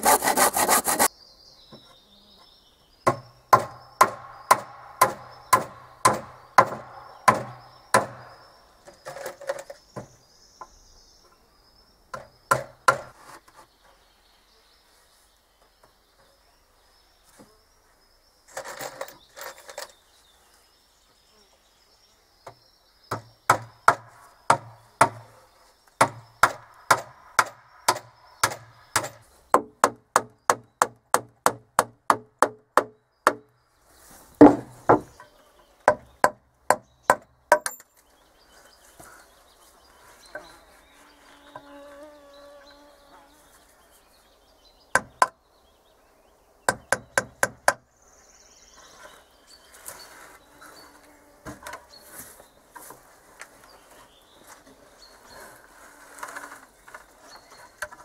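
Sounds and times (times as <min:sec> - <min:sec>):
hammer blows on wooden boards: 0:03.0 - 0:08.4, 0:12.1 - 0:13.2, 0:22.4 - 0:25.4, 0:26.0 - 0:33.5, 0:34.4 - 0:35.2, 0:35.8 - 0:37.9, 0:44.9 - 0:45.4, 0:46.7 - 0:47.9.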